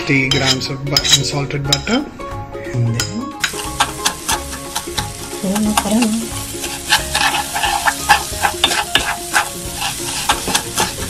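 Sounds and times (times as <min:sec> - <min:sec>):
butter sizzling: 0:03.4 - 0:11.0
wooden spoon scraping a pan: 0:03.4 - 0:11.0.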